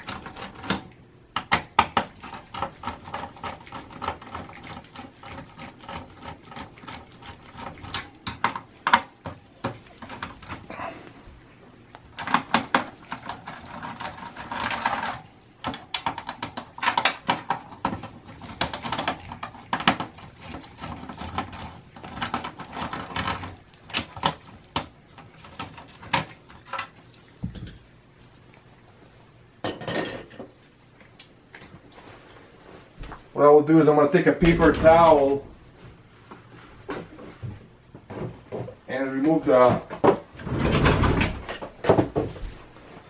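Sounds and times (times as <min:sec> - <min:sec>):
heatsink clattering: 0:33.8 - 0:35.7.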